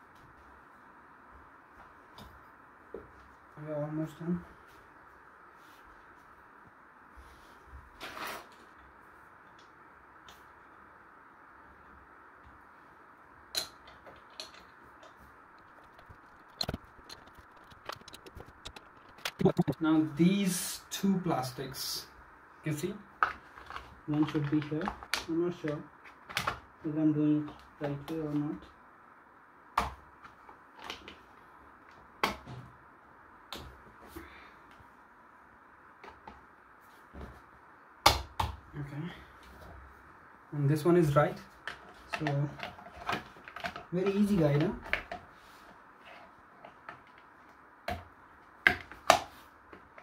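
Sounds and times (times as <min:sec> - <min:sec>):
faint steady hiss: 0:00.0 - 0:50.0
chair parts clicking and knocking: 0:13.5 - 0:19.5.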